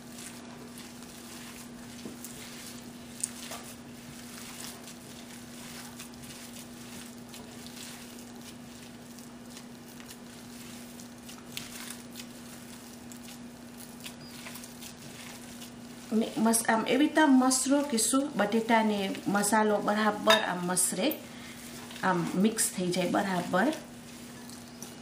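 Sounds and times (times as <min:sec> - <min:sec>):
potatoes squelching being mashed: 0:00.0 - 0:25.0
steady low hum: 0:00.0 - 0:25.0.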